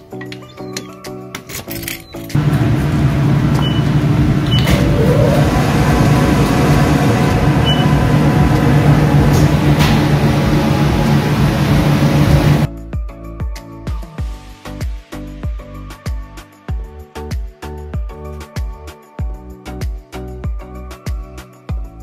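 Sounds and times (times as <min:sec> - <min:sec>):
kitchen machinery hum: 0:02.4 - 0:12.7
whir rising in pitch: 0:02.4 - 0:12.7
oven control panel beeps: 0:03.4 - 0:05.0, 0:06.3 - 0:11.2.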